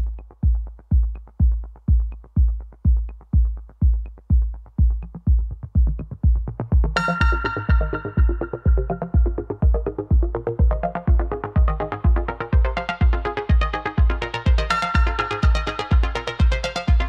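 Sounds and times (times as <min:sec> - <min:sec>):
kick drum beat: 0:00.0 - 0:17.0
bright synth chord: 0:07.0 - 0:09.2.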